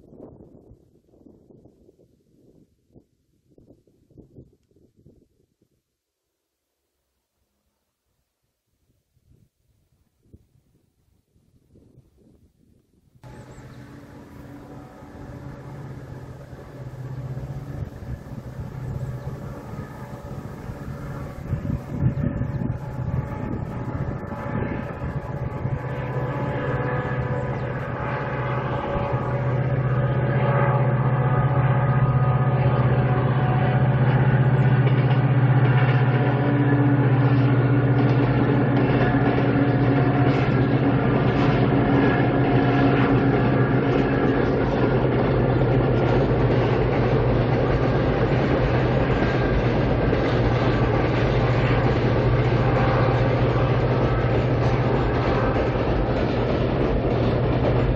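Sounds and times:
diesel locomotive engine drone: 13.1 - 57.9
train wheels rumbling on rails: 13.2 - 57.9.

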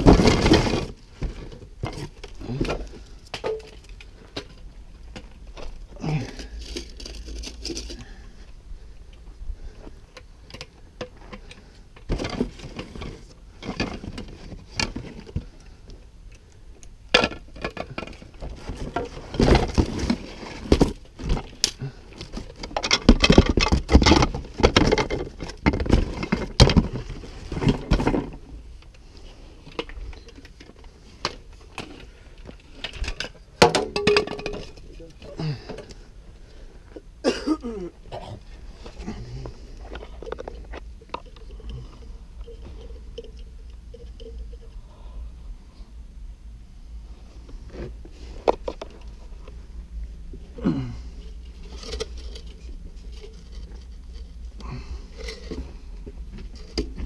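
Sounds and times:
plastic pipe fittings clattering: 32.7 - 35.0.

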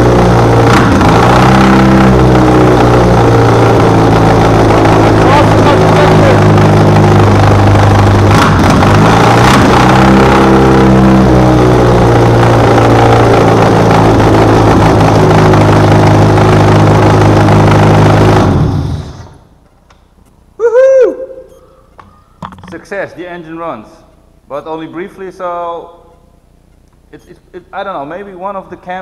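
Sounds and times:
car engine running rough: 0.0 - 19.6.

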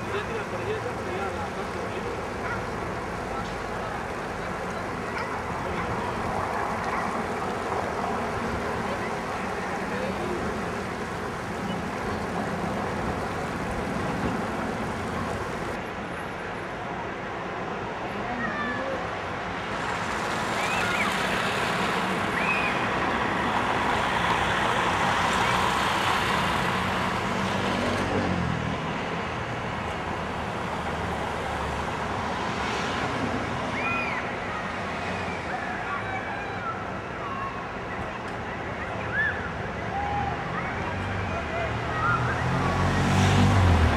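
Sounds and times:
crowd murmur: 0.0 - 15.8, 33.0 - 43.9
traffic hum: 0.0 - 43.9.

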